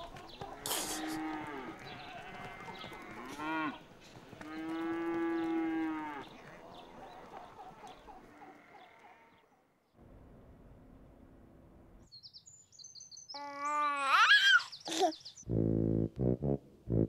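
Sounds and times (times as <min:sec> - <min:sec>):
cattle mooing: 0:00.6 - 0:03.8, 0:04.4 - 0:06.3.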